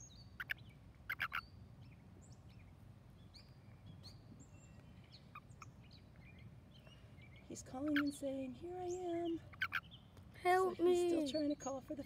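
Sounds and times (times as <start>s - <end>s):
toad chirping: 0.0s - 1.6s, 7.7s - 8.3s, 8.9s - 10.1s.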